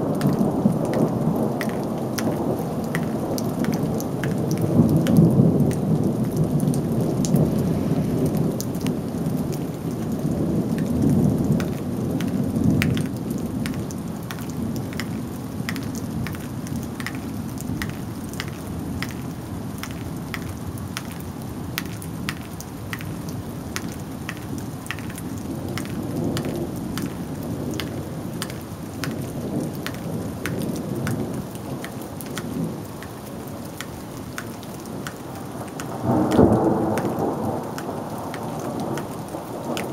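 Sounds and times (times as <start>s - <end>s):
thunder rumbling: 0.0s - 19.3s, 35.3s - 39.9s
rain falling: 0.0s - 39.9s
sharp water drips ticking: 0.0s - 39.9s.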